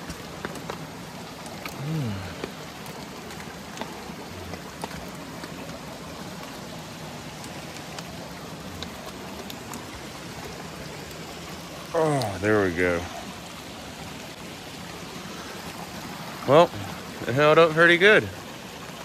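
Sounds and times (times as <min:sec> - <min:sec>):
heavy rain hissing: 0:00.0 - 0:18.3
raindrops ticking: 0:00.0 - 0:19.0.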